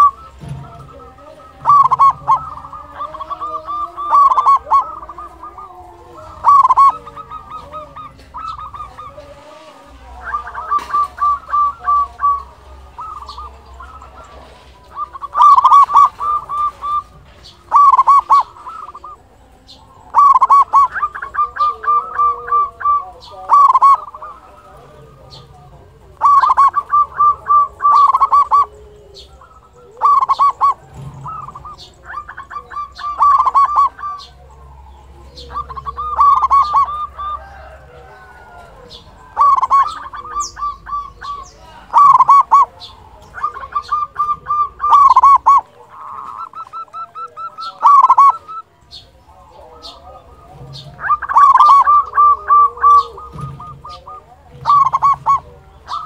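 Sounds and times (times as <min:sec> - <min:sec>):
dove cooing rapidly: 0:00.0 - 0:56.0.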